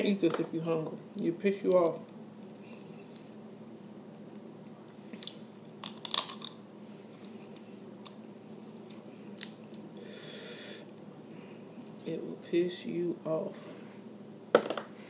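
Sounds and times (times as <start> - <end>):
shells cracking: 5.2 - 6.6
chewing: 8.8 - 9.9.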